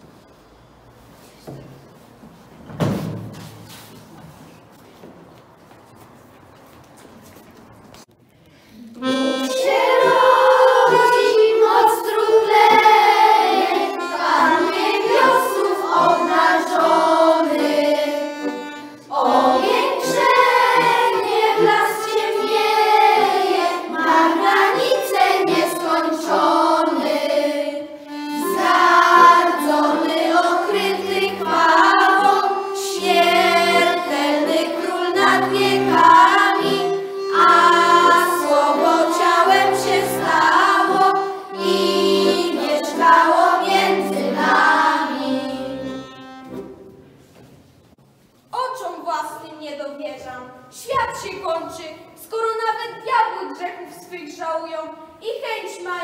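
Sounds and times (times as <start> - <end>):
children's choir singing a carol: 9.0 - 46.7
button accordion: 9.0 - 46.9.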